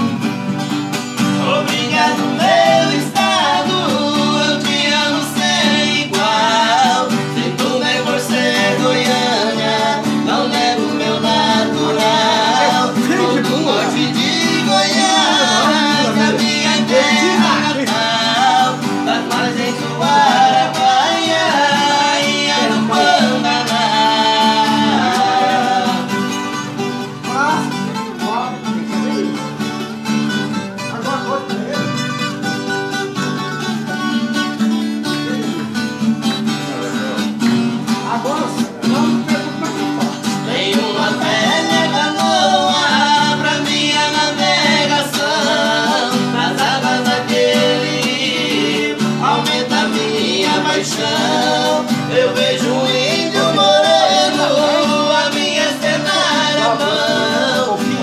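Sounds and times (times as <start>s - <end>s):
acoustic guitars strumming: 0.0s - 58.0s
man singing: 1.1s - 29.5s, 33.6s - 58.0s.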